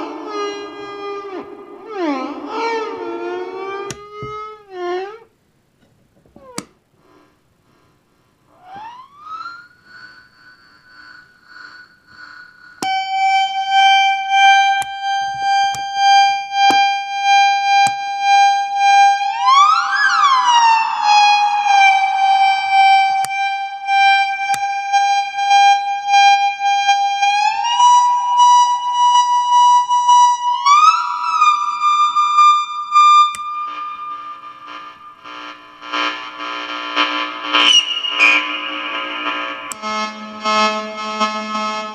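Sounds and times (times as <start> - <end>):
shrill pulsing electronic tone: 0.0 - 5.3, 8.5 - 41.9
knob clicks: 3.8 - 4.5, 5.8 - 6.8.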